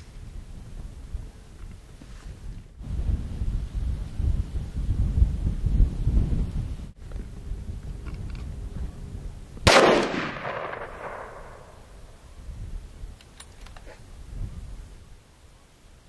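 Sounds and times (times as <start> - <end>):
gunshot: 9.7 - 11.8
rolling echo: 9.7 - 12.2.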